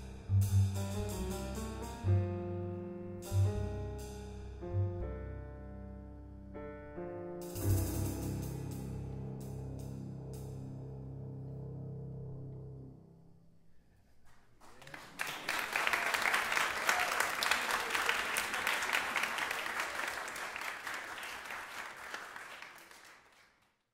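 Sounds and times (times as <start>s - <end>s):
audience applause: 14.3s - 23.8s.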